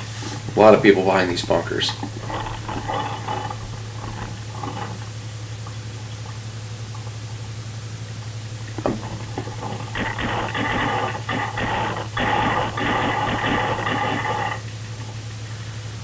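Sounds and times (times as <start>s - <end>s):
steady whir: 0.0s - 6.0s, 8.4s - 16.0s
low hum: 0.0s - 16.0s.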